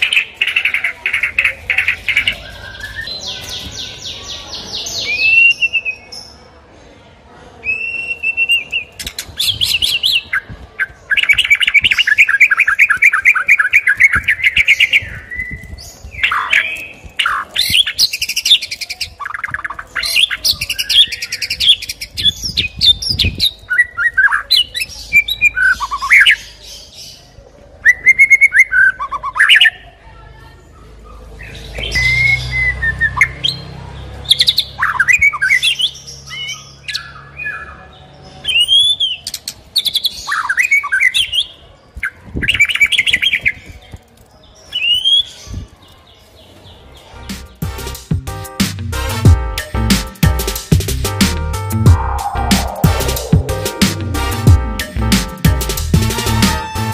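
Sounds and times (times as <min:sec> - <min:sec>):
songbird singing whistles and trills: 0:04.8 - 0:06.3, 0:07.6 - 0:26.6, 0:27.8 - 0:29.8, 0:31.4 - 0:33.6, 0:38.4 - 0:43.8.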